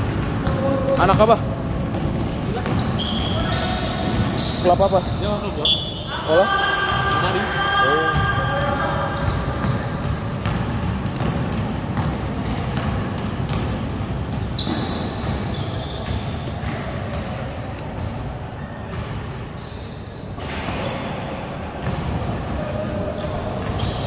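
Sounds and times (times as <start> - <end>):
basketball dribbled on court floor: 0.0 - 5.2, 8.1 - 18.3
shoe squeaks: 0.4 - 10.0, 14.2 - 16.5, 19.5 - 21.0, 22.6 - 24.0.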